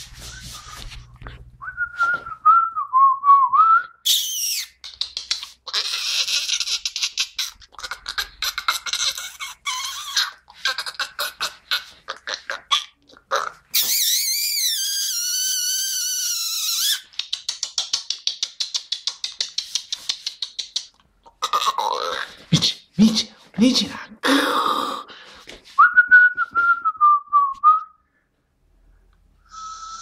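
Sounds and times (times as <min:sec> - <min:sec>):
person whistling a tune: 0:01.6 - 0:04.2, 0:25.8 - 0:28.0, 0:29.4 - 0:30.0
puppy claws clicking on tile: 0:17.0 - 0:21.1.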